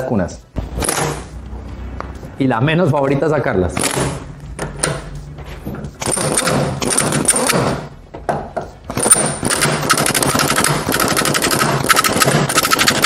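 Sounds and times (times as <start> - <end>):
pneumatic air hammer hammering: 6.0 - 7.9, 8.9 - 13.0.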